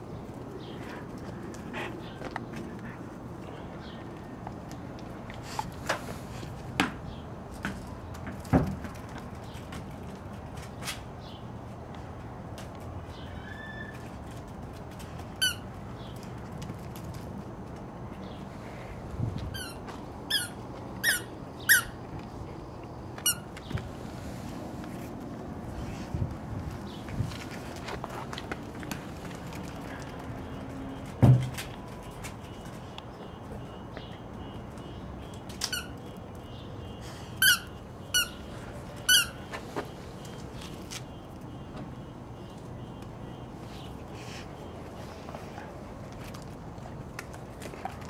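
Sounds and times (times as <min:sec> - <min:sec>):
squeaky ball squeaking: 0:15.4 - 0:15.6, 0:19.5 - 0:22.0, 0:35.6 - 0:36.0, 0:37.4 - 0:39.5.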